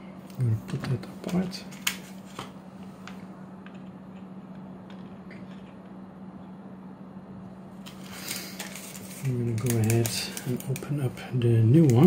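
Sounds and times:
steady low hum: 0.0s - 12.0s
packaging clicks on desk: 7.9s - 10.9s.

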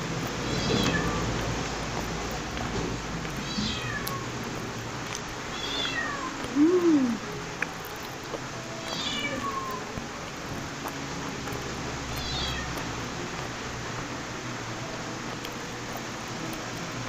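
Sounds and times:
cat meowing: 0.5s - 1.3s, 3.4s - 4.4s, 5.5s - 7.2s, 8.9s - 9.9s, 12.2s - 12.8s.

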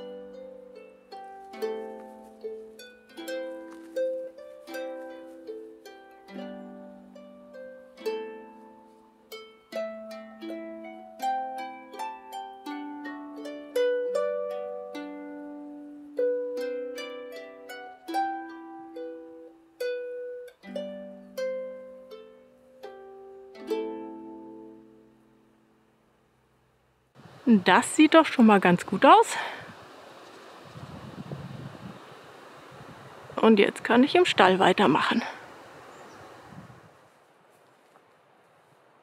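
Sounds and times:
harp playing slow music: 0.0s - 26.6s.

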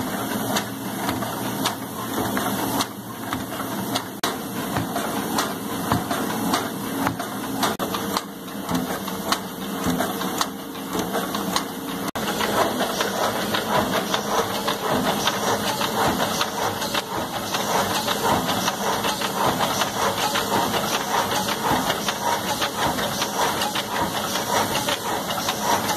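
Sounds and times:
machines clattering: 0.0s - 25.9s.

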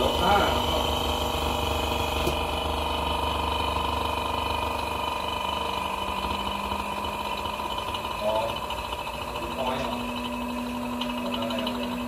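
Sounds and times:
pump mechanical hum: 0.0s - 12.0s
steady machine tones: 0.0s - 12.0s.

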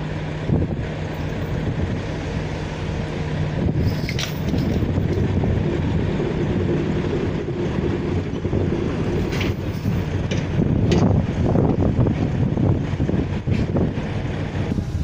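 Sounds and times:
engine humming: 0.0s - 15.0s
sharp knocks and clanks: 7.7s - 11.8s.

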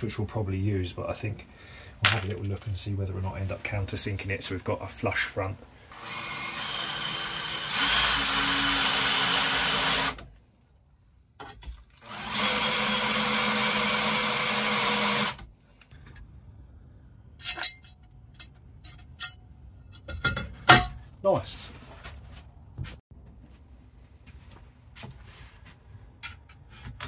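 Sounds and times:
cordless drill boring through steel: 5.9s - 10.2s, 12.0s - 15.4s.

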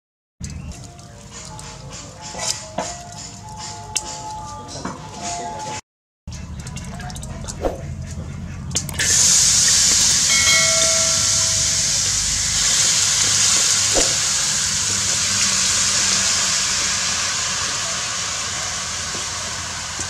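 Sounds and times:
food sizzling in a hot wok: 9.0s - 20.0s.

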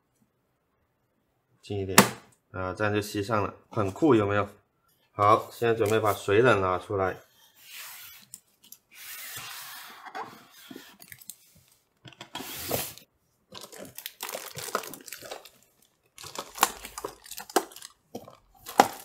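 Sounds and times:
packaging rustling and crinkling: 10.6s - 19.0s.

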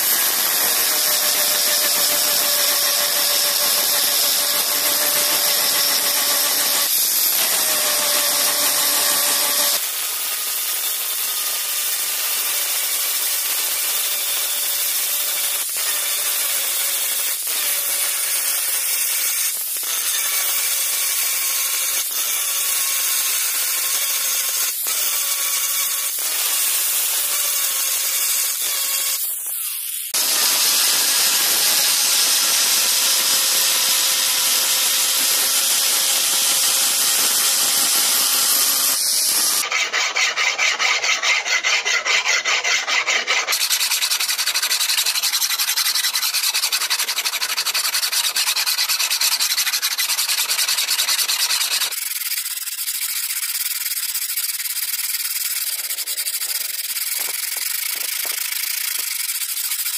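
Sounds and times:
angle grinder grinding steel: 0.0s - 59.9s
hand file rasping on metal: 12.4s - 59.9s.

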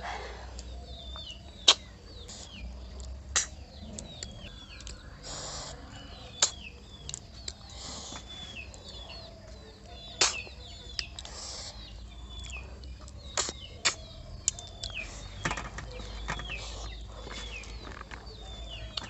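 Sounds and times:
bird chirping: 0.0s - 19.0s
sharp eating clicks: 1.6s - 5.8s, 6.4s - 9.2s, 10.1s - 15.3s.

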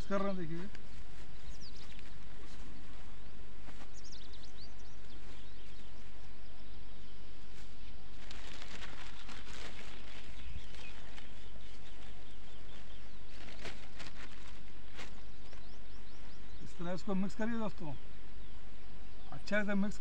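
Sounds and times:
bird chirping: 0.0s - 20.0s
outdoor background noise: 0.0s - 20.0s
plastic bag crinkling: 8.1s - 15.2s.

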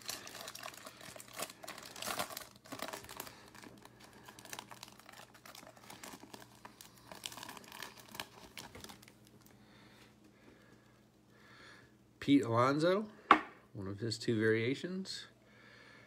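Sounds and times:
foil wrapper crinkling: 0.0s - 9.6s.

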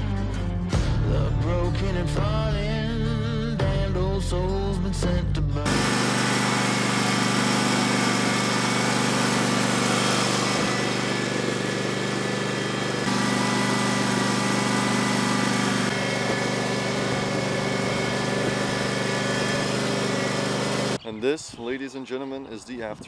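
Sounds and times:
lawn tractor engine running: 5.6s - 21.0s.

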